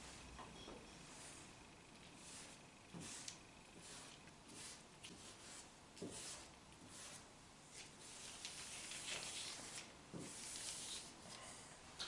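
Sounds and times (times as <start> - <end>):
marker pen scratching on paper: 2.0 - 11.1.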